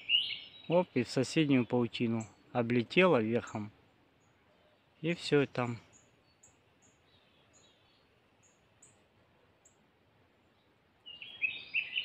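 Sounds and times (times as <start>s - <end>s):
warbled birdsong: 0.0s - 12.0s
songbird high ticks: 5.6s - 7.8s, 8.4s - 9.9s.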